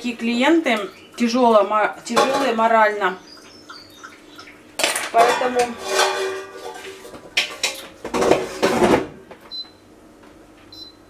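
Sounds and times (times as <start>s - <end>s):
dishes and cutlery clattering: 2.1s - 2.6s, 4.8s - 9.1s.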